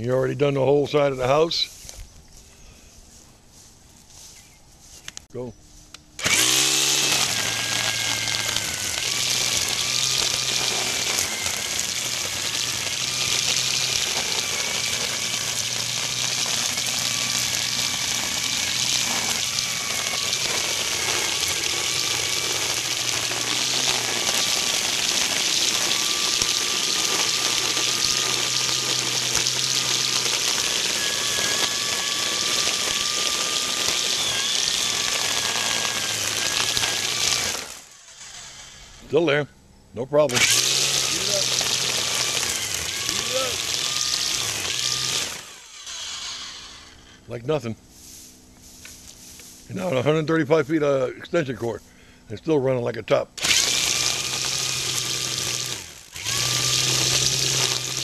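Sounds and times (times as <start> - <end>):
zip ties slashing grass: 5.9 - 38.2
string trimmer motor whine: 6.2 - 39.3, 40.2 - 47.3, 53.4 - 58.0.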